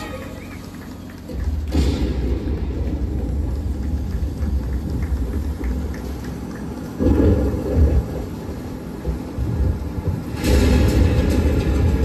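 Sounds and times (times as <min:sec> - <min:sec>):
low uneven rumble: 0:00.0 - 0:12.0.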